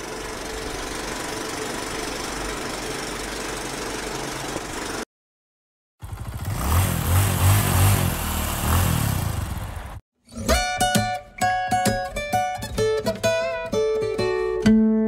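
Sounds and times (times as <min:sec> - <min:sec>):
vehicle engine revving: 0:06.0 - 0:10.0.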